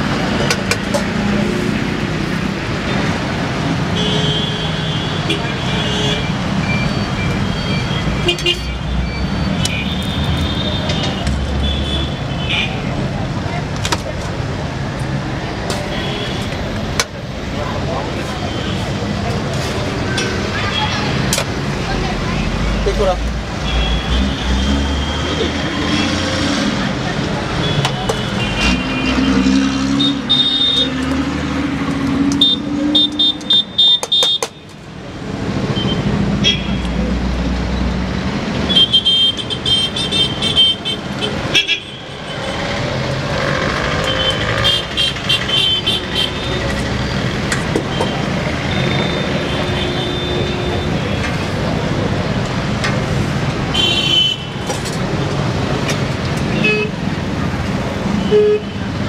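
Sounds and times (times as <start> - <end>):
traffic engine hum: 0.0 - 59.0
vehicle horns beeping: 4.0 - 12.9, 27.6 - 31.0, 32.4 - 34.7, 35.8 - 36.9, 38.6 - 42.3, 47.8 - 51.3, 53.7 - 54.7, 58.1 - 59.0.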